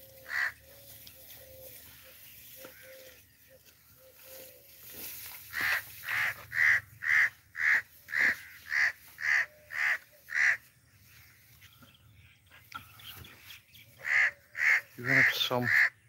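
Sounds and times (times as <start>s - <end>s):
bird harsh alarm calls: 0.1s - 0.8s, 5.5s - 10.7s, 12.8s - 16.0s.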